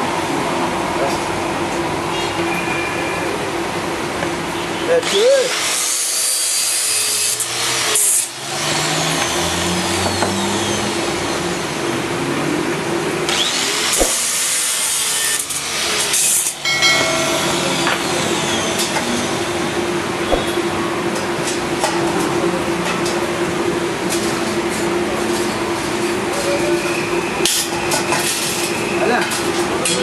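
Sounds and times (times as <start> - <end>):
angle grinder motor whine: 13.3 - 20.7.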